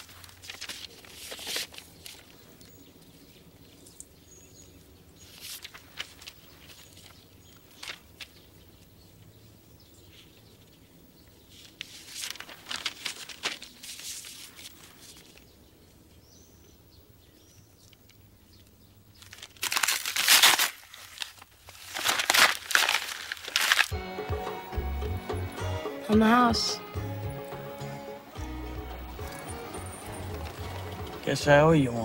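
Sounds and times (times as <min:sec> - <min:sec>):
paper crinkling: 0:00.0 - 0:04.0, 0:05.2 - 0:08.5, 0:11.5 - 0:15.5, 0:19.2 - 0:24.0.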